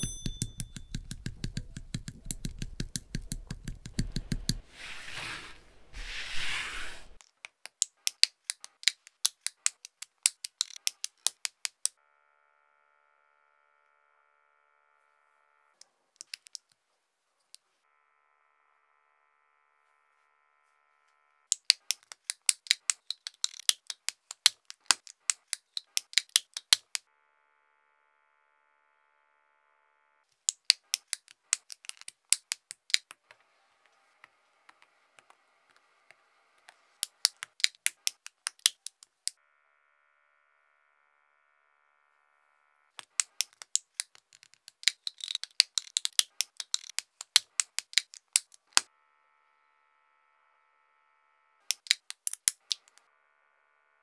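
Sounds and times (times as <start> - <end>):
rapid sharp clicks: 0.0 - 4.7.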